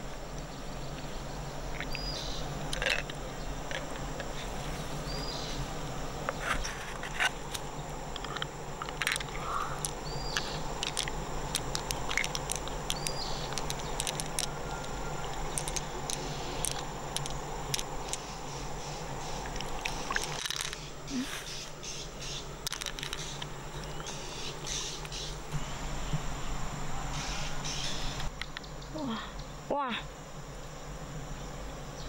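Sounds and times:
outdoor hiss: 0.0 - 32.0
sharp clicks and scrapes: 6.3 - 18.3.

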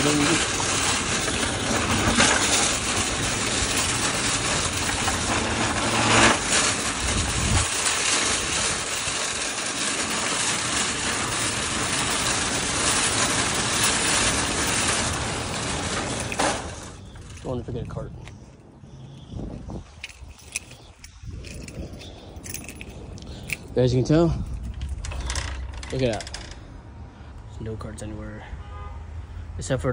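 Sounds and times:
shopping cart clank: 0.0 - 18.0
shopping carts rattling over asphalt: 0.0 - 18.2, 19.8 - 26.7.

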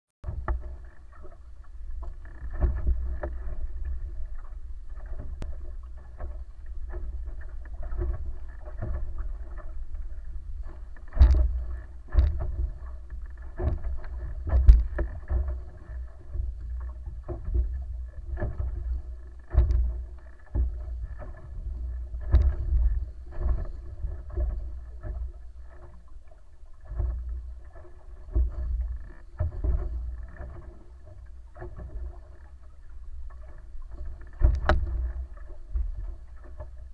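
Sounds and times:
steady low rumble: 0.2 - 36.9
water rushing along hull: 0.2 - 36.9.

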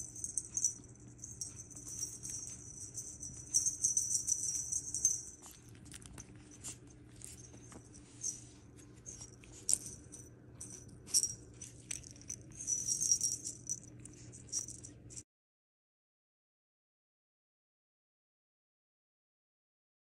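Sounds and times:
faint low hum: 0.0 - 15.2
jingle bell jingling: 0.0 - 15.2.

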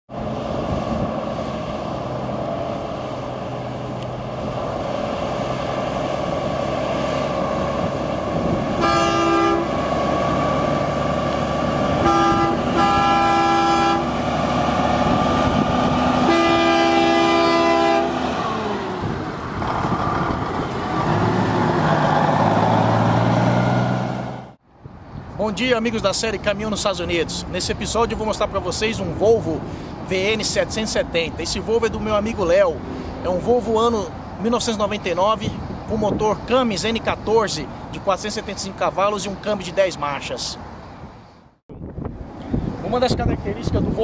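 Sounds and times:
diesel truck engine running: 0.1 - 24.6
deep engine rumble: 0.1 - 25.0
multi-tone air horn blasts: 8.8 - 9.8, 12.0 - 14.1, 16.2 - 18.2.

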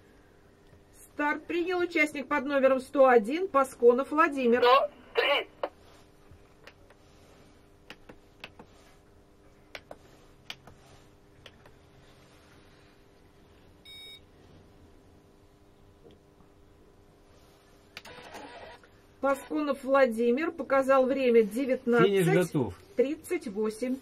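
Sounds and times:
faint low hum: 0.0 - 24.0
short electronic beep: 13.9 - 14.2.

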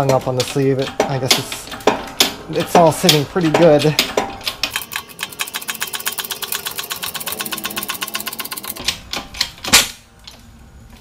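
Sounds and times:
rapid mechanical clicking: 0.0 - 10.4.

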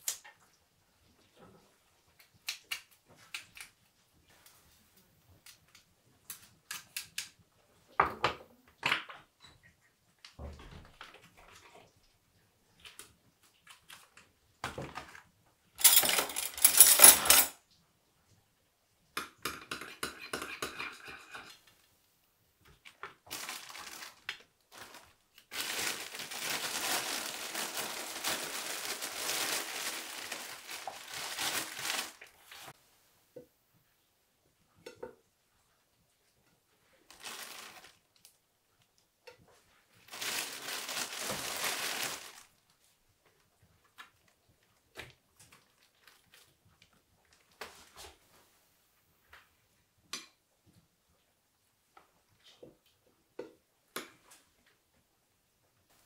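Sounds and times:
utensils clattering: 15.8 - 17.6.

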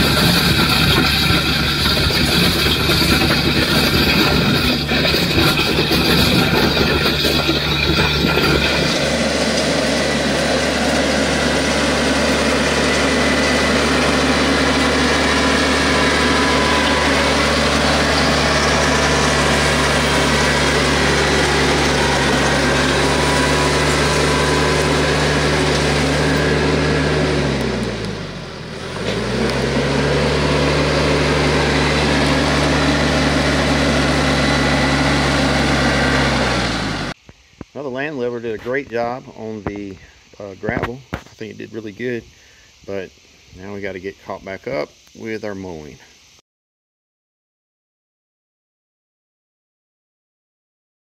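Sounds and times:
tractor diesel engine running: 0.0 - 37.3
land plane scraping gravel: 0.0 - 46.1.

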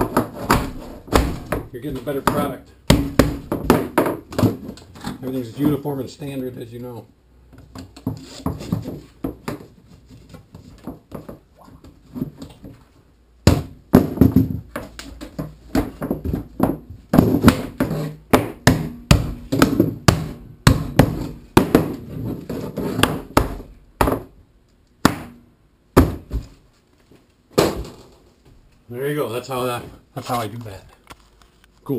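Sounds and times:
fabric and plastic pipe handling: 7.5 - 13.2
mallet knocking plastic pipe: 15.7 - 22.0.

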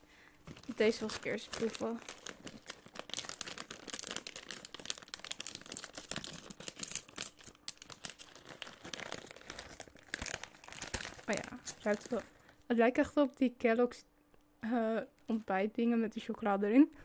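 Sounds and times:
plastic snack bag crinkling: 0.5 - 12.6.

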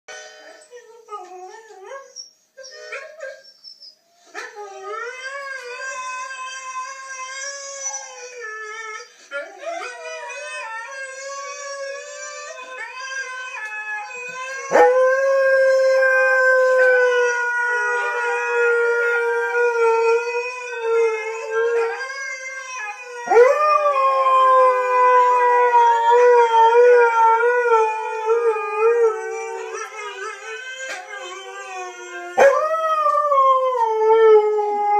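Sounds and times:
huskies howling: 9.0 - 34.9.

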